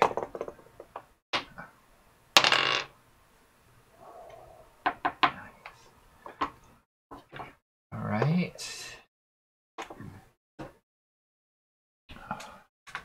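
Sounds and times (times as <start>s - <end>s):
dice clattering on a tabletop: 0.0s - 1.0s, 2.4s - 2.9s.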